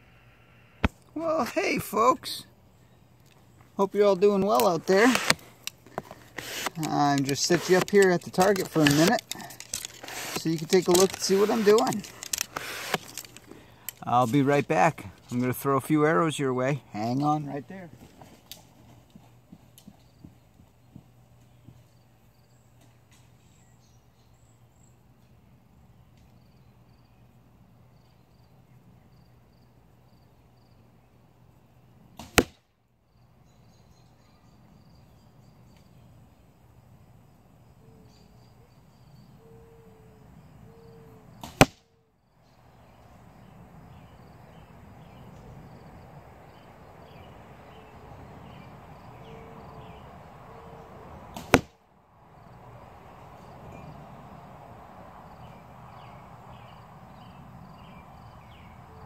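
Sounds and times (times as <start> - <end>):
arrows striking bag target: 4.5 - 13.4, 32.2 - 32.6, 41.4 - 41.8, 51.3 - 51.8.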